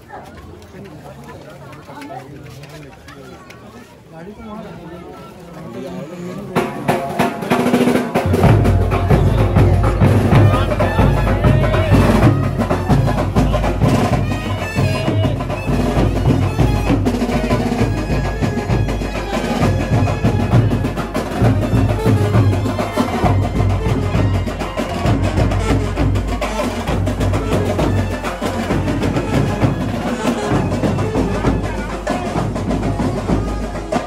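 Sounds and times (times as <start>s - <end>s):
fast driving drum beat: 6.6s - 34.0s
saxophone melody: 8.9s - 34.0s.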